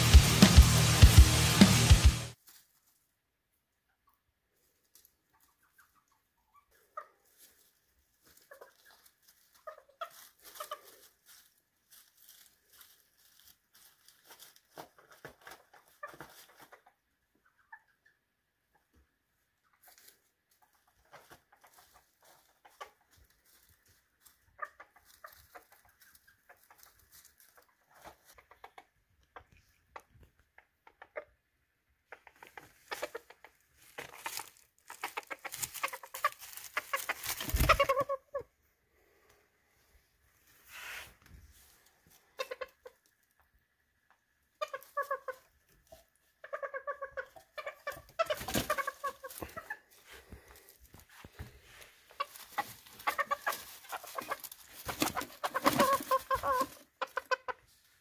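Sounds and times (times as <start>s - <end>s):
chickens clucking: 3.6s - 39.9s, 40.7s - 58.0s.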